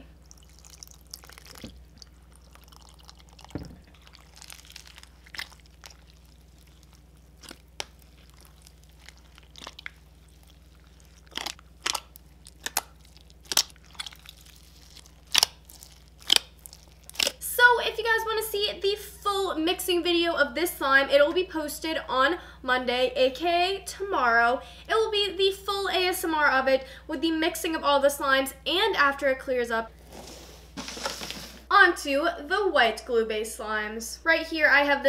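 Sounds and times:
slime squelching: 0:00.0 - 0:17.5
foam beads clicking and popping: 0:10.7 - 0:17.4.

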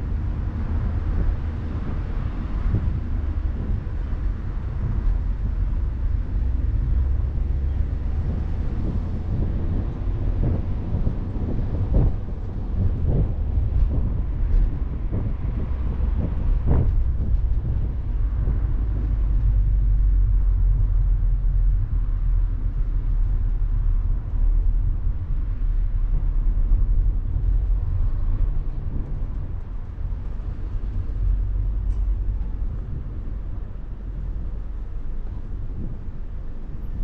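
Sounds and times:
car engine rumble: 0:00.0 - 0:37.0.

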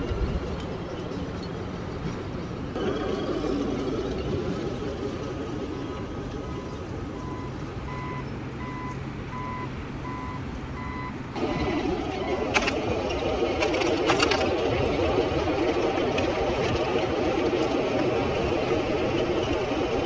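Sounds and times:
model truck hum: 0:00.0 - 0:20.0
short electronic reversing beeps: 0:05.6 - 0:12.6.

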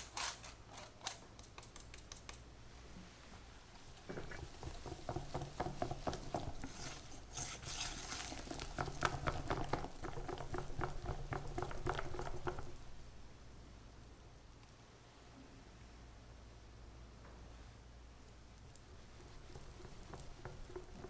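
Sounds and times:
whisk beating batter: 0:03.9 - 0:13.1, 0:18.7 - 0:21.0.

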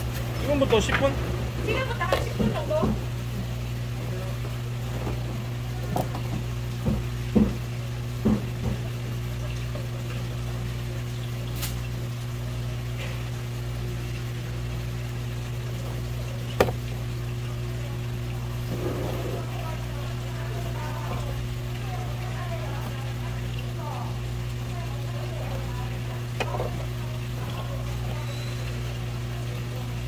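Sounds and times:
low mechanical hum: 0:00.0 - 0:30.0
sharp knocks on a work surface: 0:06.8 - 0:07.6, 0:08.2 - 0:08.8.

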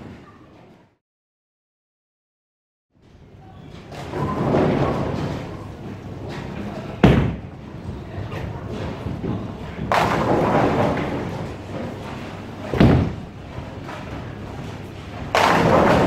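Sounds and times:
bowling ball thudding on lane: 0:09.8 - 0:11.4, 0:12.7 - 0:13.4, 0:15.2 - 0:16.0
bowling pins crashing: 0:09.8 - 0:14.3, 0:15.2 - 0:16.0.

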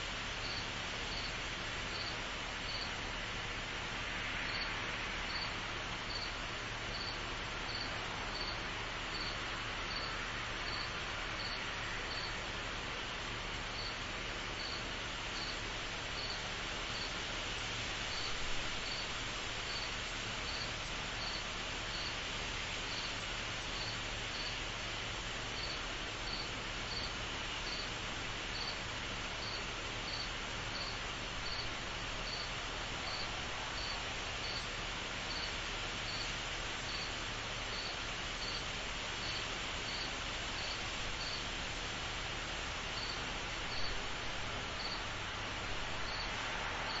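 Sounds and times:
steady hiss: 0:00.0 - 0:47.0
cricket chirping: 0:00.4 - 0:01.3, 0:01.9 - 0:02.9, 0:05.3 - 0:06.3, 0:06.9 - 0:12.4, 0:13.8 - 0:14.0, 0:14.6 - 0:14.8, 0:15.4 - 0:15.6, 0:16.2 - 0:17.1, 0:18.1 - 0:19.1, 0:19.7 - 0:19.9, 0:20.5 - 0:22.1, 0:23.8 - 0:24.6, 0:25.6 - 0:27.1, 0:27.7 - 0:27.9, 0:28.5 - 0:28.8, 0:29.4 - 0:31.7, 0:32.3 - 0:34.7, 0:35.3 - 0:35.5, 0:36.1 - 0:36.3, 0:36.9 - 0:38.6, 0:39.2 - 0:41.4, 0:43.0 - 0:44.0, 0:44.8 - 0:45.1, 0:46.1 - 0:47.0.

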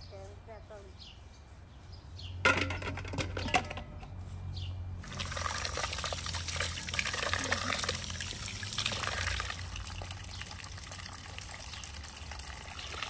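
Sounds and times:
birds chirping: 0:00.0 - 0:02.4, 0:05.8 - 0:13.0
water pouring and splashing: 0:05.0 - 0:13.0.

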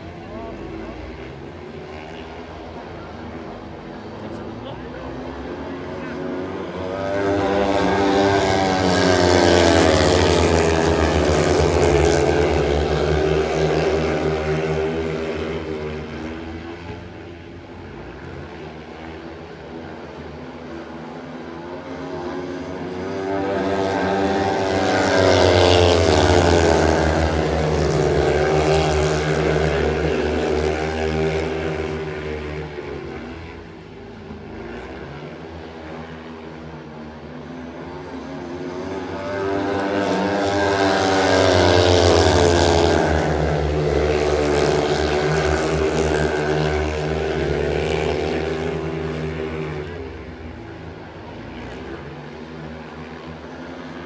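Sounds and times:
motorcycles racing at full throttle: 0:00.0 - 0:54.0.

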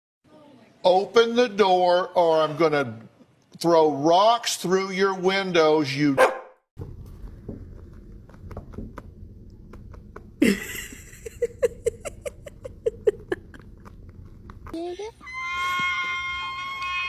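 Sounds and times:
kitten claws scratching blanket: 0:06.9 - 0:10.4, 0:13.4 - 0:14.8.

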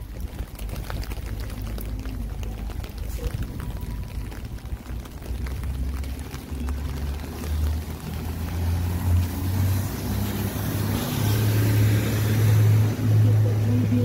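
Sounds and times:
wet road hiss: 0:05.5 - 0:13.7.

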